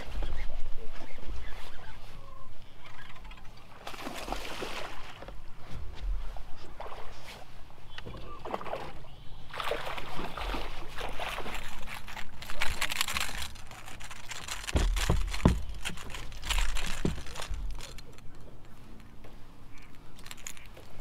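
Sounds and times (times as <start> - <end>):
fish splashing in water: 3.7 - 5.2, 8.4 - 18.2
heavy thumps: 13.5 - 17.8.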